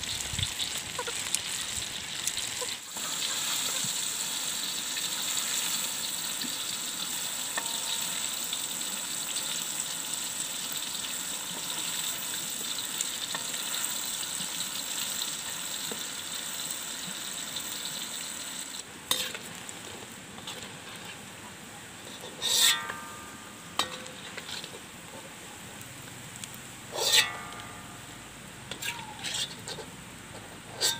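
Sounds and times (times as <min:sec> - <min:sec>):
fish sizzling in hot oil: 0:00.0 - 0:21.3, 0:25.8 - 0:30.9
metal spoon clinking on wok: 0:07.5 - 0:08.2.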